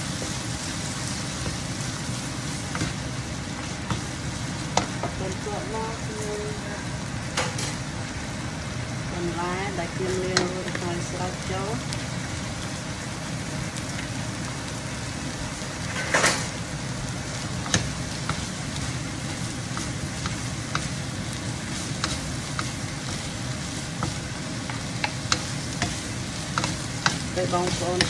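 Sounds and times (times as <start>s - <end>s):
cabbage sizzling in a frying pan: 0.0s - 28.0s
spatulas tapping and scraping pan: 2.6s - 3.1s, 3.7s - 5.2s, 17.4s - 28.0s.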